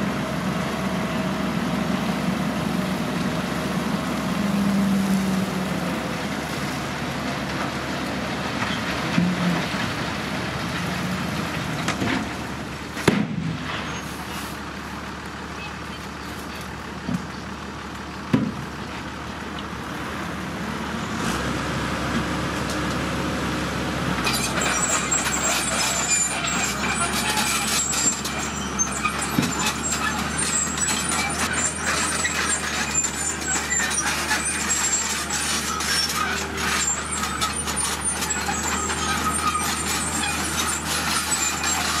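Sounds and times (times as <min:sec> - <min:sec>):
diesel truck engine: 0:00.0 - 0:42.0
rock load banging: 0:24.2 - 0:42.0
tyres crackling over stones: 0:24.2 - 0:42.0.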